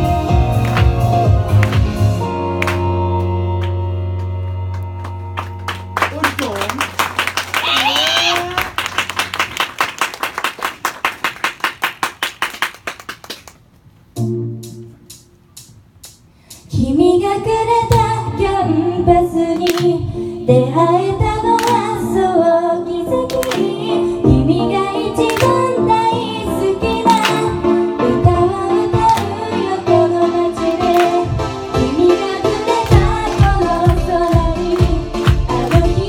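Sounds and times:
pop song: 16.6s - 36.0s
woman singing into microphone: 16.7s - 36.0s.

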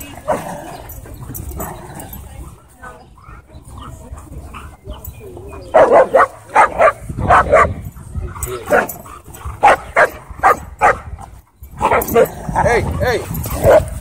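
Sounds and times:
dog barking: 5.7s - 7.8s, 9.6s - 11.1s, 13.6s - 13.9s.

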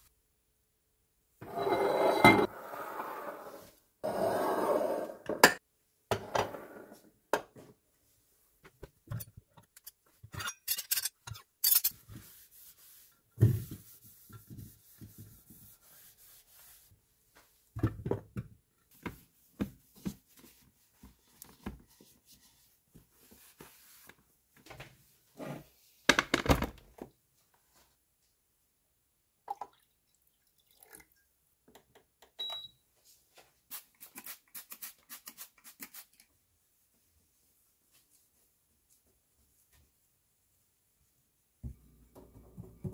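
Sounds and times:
paper towel rubbing on kettle: 12.0s - 17.0s.

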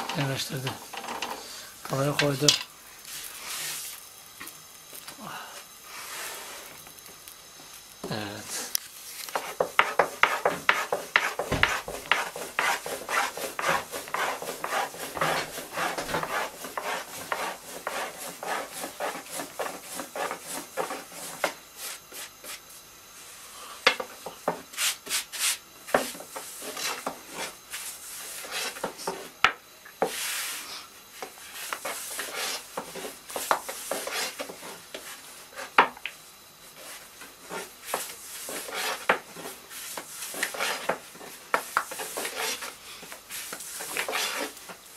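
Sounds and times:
rolling pin rubbing dough: 9.2s - 22.6s, 24.7s - 29.3s, 31.2s - 35.8s, 36.7s - 44.9s
wood knocking on wood: 9.4s - 18.0s.

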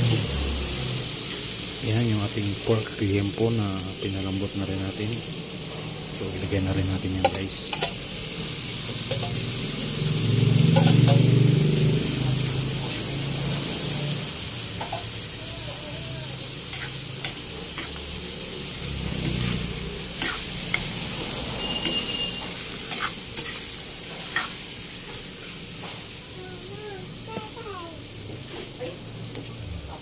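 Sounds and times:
meat sizzling in a wok: 0.0s - 30.0s
spatula scraping a wok: 7.2s - 9.6s, 10.5s - 11.4s, 16.5s - 26.2s.

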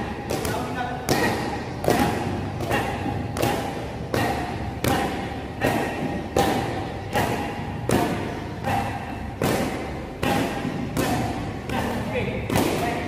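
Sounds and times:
kicks slapping on kick pads: 9.4s - 13.0s.

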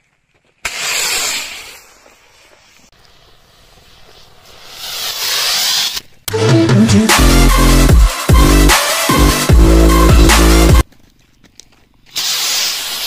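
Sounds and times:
rising hiss of burning propellant: 0.6s - 6.0s
firework rocket rushing hiss: 0.6s - 6.2s, 12.1s - 13.0s.

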